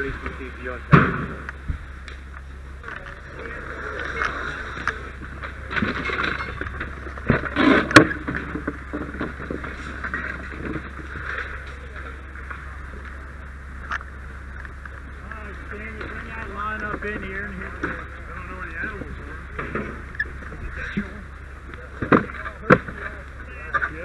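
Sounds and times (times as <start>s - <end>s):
steady low hum: 0.0s - 24.0s
burned wood knocking and clattering: 0.9s - 3.1s, 4.8s - 13.2s, 15.6s - 23.9s.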